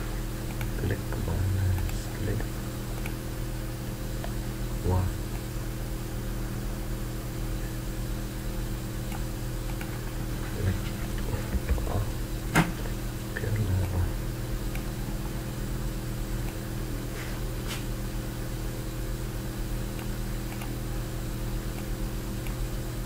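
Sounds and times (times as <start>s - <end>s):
electrical hum: 0.0s - 23.0s
computer mouse clicks: 0.5s - 0.7s, 3.0s - 3.2s, 9.1s - 9.9s, 19.9s - 20.8s.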